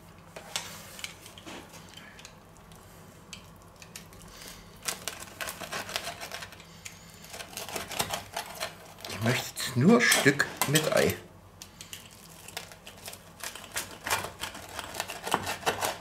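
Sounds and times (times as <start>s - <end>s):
knife sawing through pizza crust: 5.0s - 9.4s, 13.4s - 16.0s.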